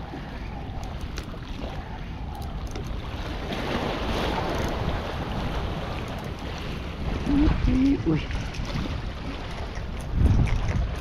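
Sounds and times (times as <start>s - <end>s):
wind buffeting microphone: 0.0s - 11.0s
water washing against rocks: 3.3s - 11.0s.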